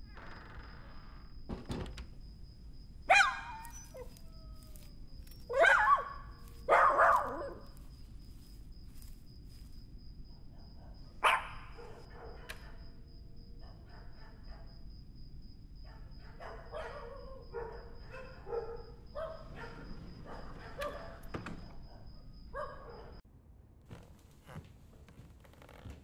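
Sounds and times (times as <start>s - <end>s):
dog barking and yelping: 3.1s - 7.9s, 10.8s - 12.7s, 15.9s - 21.2s, 21.9s - 23.2s.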